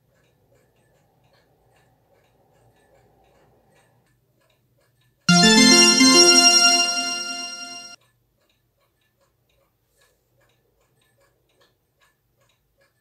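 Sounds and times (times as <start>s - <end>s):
keyboard chord ringing: 5.3s - 8.0s.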